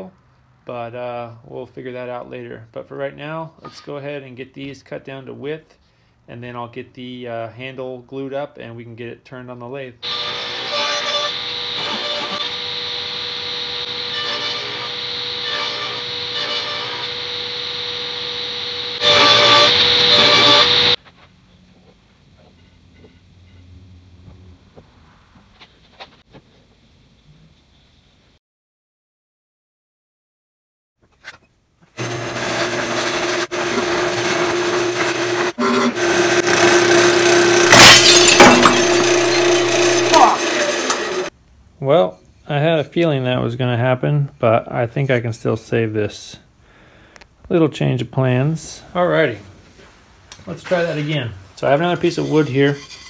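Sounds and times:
gouge scraping spinning wood: 10.0 - 21.0, 32.0 - 41.3
table saw cutting boards: 10.0 - 21.0, 32.0 - 41.3
wood lathe motor hum: 10.0 - 21.0, 32.0 - 41.3.

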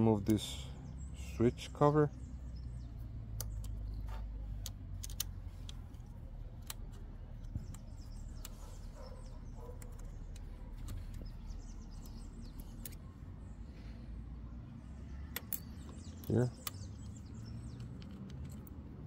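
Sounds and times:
hex key metal clicks: 3.3 - 8.7, 15.2 - 19.0.

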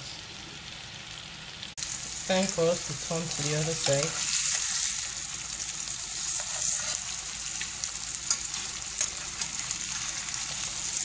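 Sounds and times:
chicken sizzling in butter: 0.0 - 11.0
metal utensils clicking on pan: 8.2 - 10.9.

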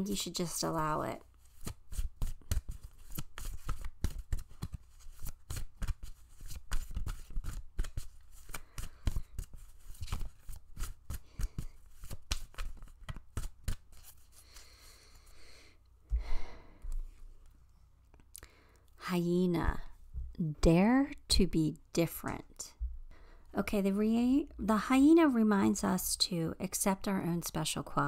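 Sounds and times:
cards being shuffled: 1.3 - 15.0.

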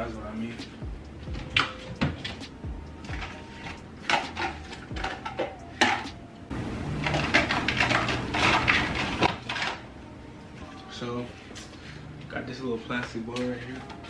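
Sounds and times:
dishes and plastic containers clattering: 3.0 - 6.2, 7.0 - 9.8.

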